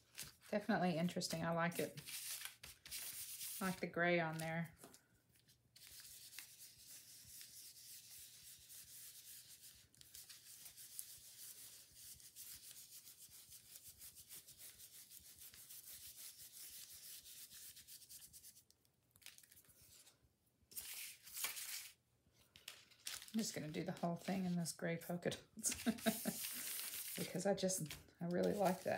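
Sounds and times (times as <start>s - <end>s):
stencil brush scratching: 1.8s - 3.8s, 5.8s - 18.6s, 25.7s - 27.4s, 28.4s - 28.9s.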